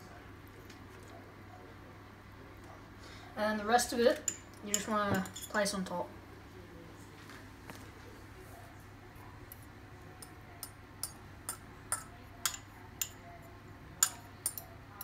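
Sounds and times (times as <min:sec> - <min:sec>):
spoon clinking on ceramic ramekin: 0:10.2 - 0:13.2, 0:14.0 - 0:14.7.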